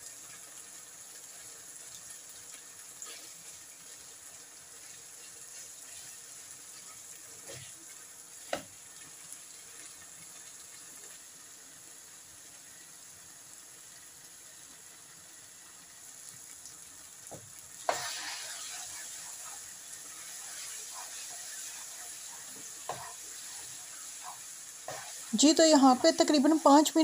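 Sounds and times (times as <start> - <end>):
food sizzling in frying pan: 0.0 - 27.0
spatula knocking pan: 22.4 - 26.3.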